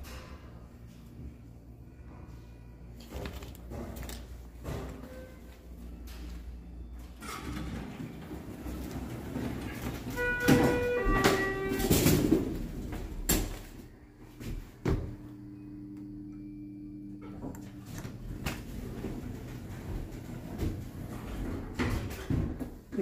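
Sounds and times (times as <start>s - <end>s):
low hum: 0.0s - 22.0s
elevator car running: 0.0s - 23.0s
elevator doors sliding: 2.9s - 13.8s, 17.2s - 23.0s.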